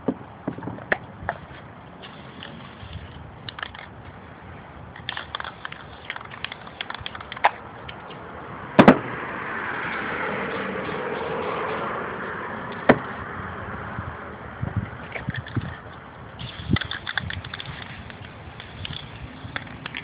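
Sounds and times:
spray can clicks and rattles: 2.0 - 4.0, 5.0 - 8.2, 15.1 - 20.0.

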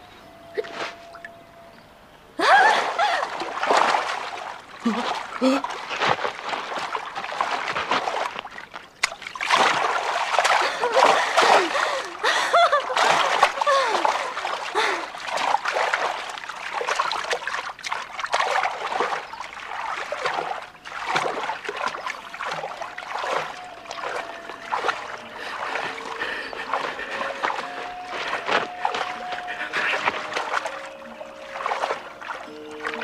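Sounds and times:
faint held music notes: 0.0 - 3.3, 21.7 - 33.0
water splashing and sloshing: 0.2 - 1.7, 2.4 - 33.0.

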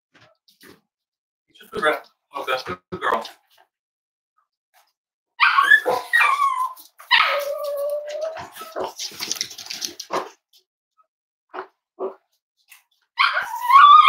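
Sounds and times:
dog whining: 5.4 - 9.0, 13.2 - 14.0
dog yipping: 5.4 - 9.0, 13.2 - 14.0
quick clicks and clatter: 8.8 - 10.4.

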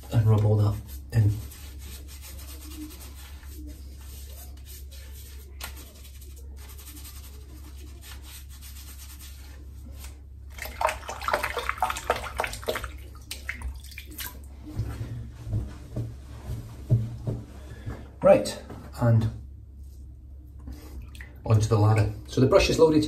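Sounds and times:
hands rubbing soap on face: 0.2 - 17.0
water splashing and trickling: 10.5 - 14.6.

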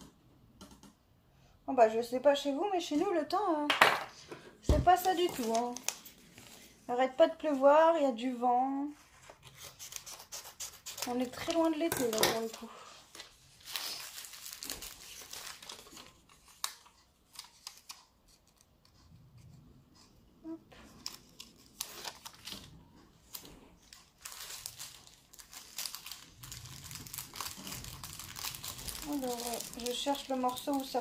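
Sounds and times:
plastic packaging crinkling: 4.9 - 6.7, 11.0 - 18.1, 20.9 - 31.0.

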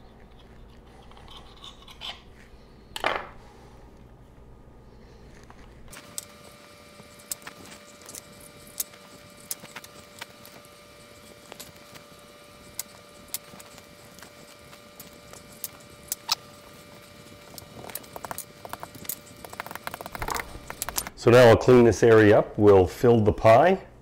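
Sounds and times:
faint hum: 0.0 - 24.0
rolling pin rolling on tile: 17.4 - 21.1.

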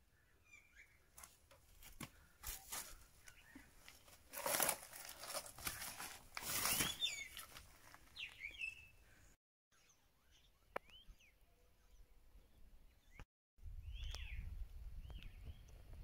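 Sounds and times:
rustling: 1.2 - 8.3.

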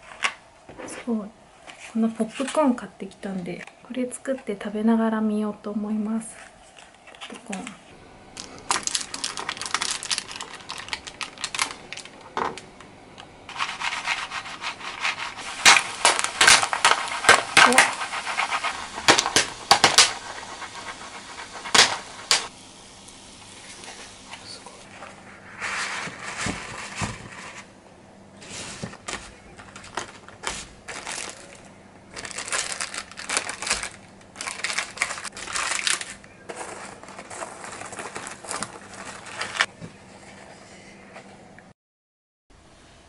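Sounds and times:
faint steady hum: 0.0 - 41.7
popcorn kernels popping: 8.3 - 12.9, 13.5 - 22.5, 29.0 - 39.7.

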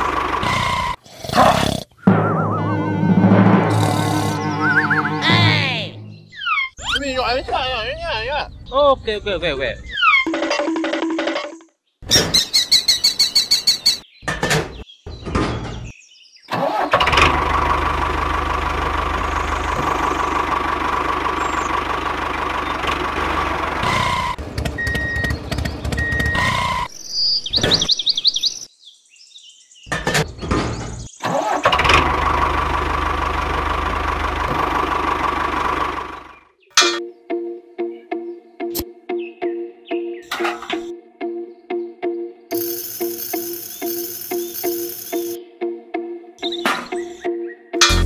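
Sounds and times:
small diesel engine running: 0.0 - 1.0, 16.5 - 26.8, 31.3 - 36.5
engine starting rattle: 16.5 - 26.9, 30.0 - 36.3.

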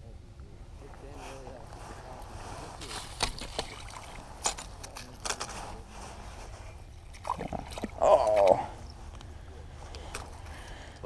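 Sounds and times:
wavering voice-like cry: 8.0 - 8.8.

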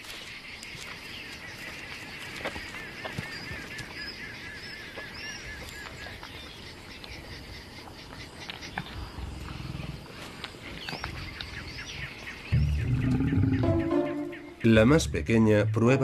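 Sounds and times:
bird honking call: 12.5 - 14.7.

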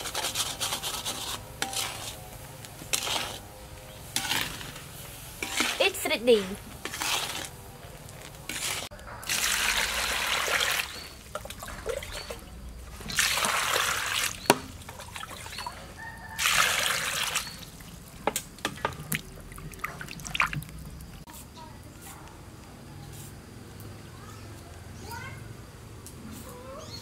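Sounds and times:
vegetables rubbed in water: 0.0 - 2.3, 2.9 - 3.5, 5.4 - 7.6, 8.2 - 12.4
water pouring and splashing: 4.1 - 7.6, 8.2 - 21.3.

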